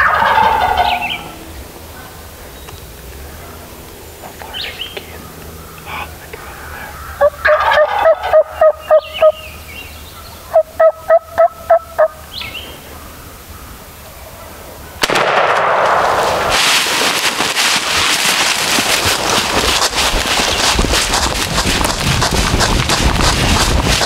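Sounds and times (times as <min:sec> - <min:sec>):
turkey gobbling: 0:00.0 - 0:02.2, 0:04.6 - 0:09.5, 0:10.2 - 0:13.7
songbird chirps: 0:00.6 - 0:07.6, 0:08.4 - 0:11.1, 0:11.8 - 0:14.3
loud burst of noise: 0:15.0 - 0:20.8.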